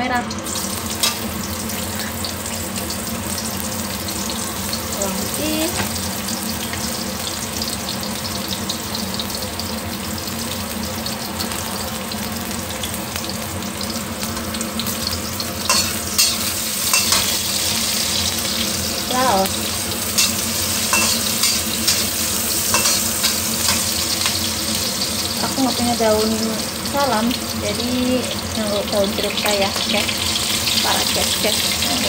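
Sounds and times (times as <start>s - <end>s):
shallots sizzling in hot oil: 0.0s - 32.0s
metal spatula scraping wok: 20.0s - 24.4s.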